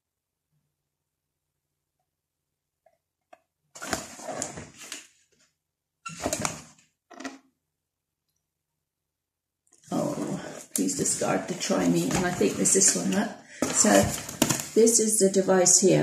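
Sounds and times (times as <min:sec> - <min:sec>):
cardboard box rustling and scraping: 0:03.8 - 0:05.0, 0:10.0 - 0:14.8.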